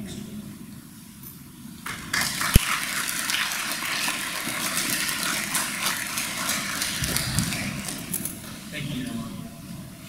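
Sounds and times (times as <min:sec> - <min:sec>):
audience applauding: 0:01.8 - 0:08.6.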